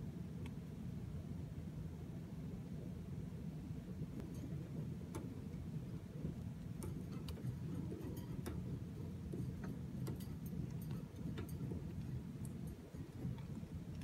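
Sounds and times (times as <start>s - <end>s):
steady low rumble: 0.0s - 14.0s
light clicks and ticks: 4.2s - 14.0s.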